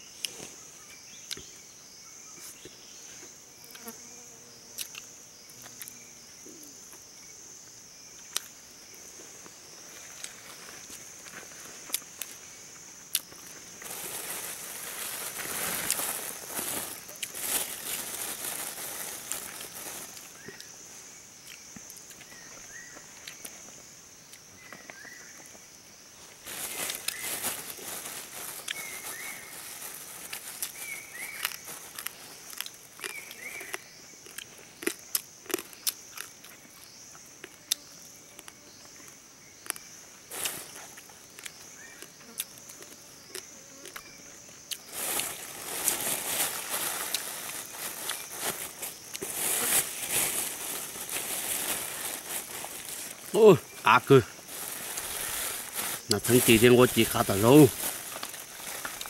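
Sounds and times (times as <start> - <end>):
high insect drone: 0.0 - 59.0
man chewing and crunching: 31.4 - 36.8, 40.9 - 44.0.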